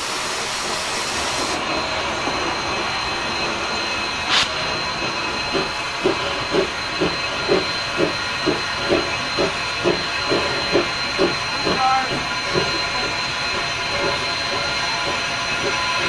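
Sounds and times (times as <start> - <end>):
steam hissing: 0.0 - 16.0
steam locomotive exhaust chuffs: 0.0 - 16.0.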